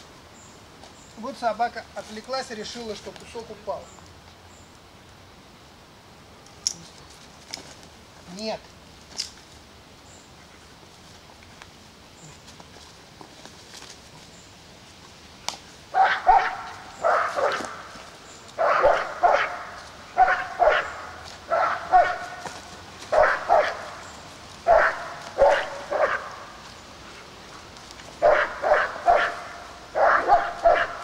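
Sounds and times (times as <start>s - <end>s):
dog barking: 16.0s - 17.9s, 18.6s - 22.5s, 23.1s - 24.0s, 24.6s - 26.4s, 28.2s - 31.0s.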